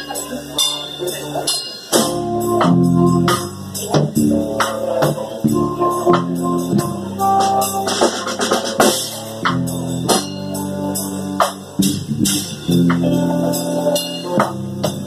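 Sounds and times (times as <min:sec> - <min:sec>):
jazz ensemble playing: 0:00.0 - 0:15.0
drum hits: 0:02.0 - 0:15.0.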